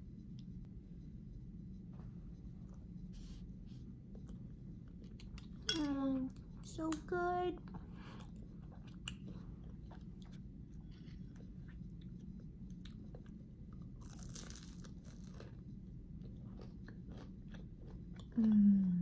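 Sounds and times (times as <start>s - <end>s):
pastry crust crunching: 12.8s - 18.0s.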